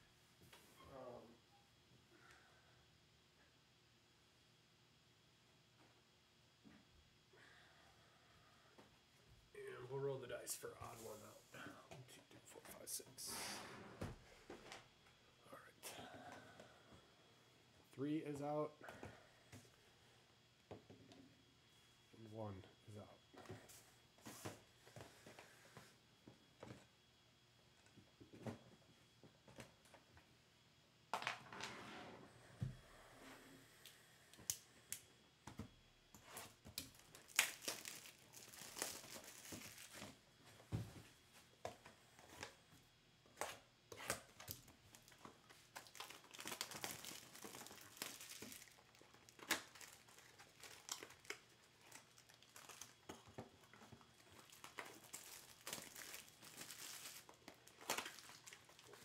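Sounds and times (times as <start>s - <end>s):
plastic wrap crinkling and tearing: 36.8s - 40.1s, 44.5s - 59.0s.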